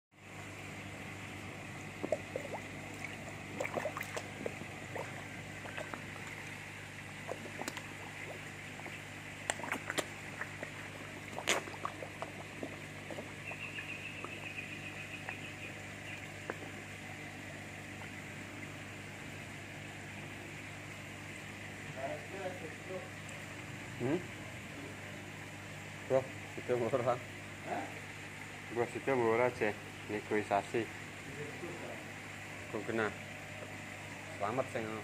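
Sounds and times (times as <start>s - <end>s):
fish splashing: 0.2s - 20.1s
steady low hum: 0.2s - 35.0s
fish slurping with sucking pops: 1.9s - 14.3s.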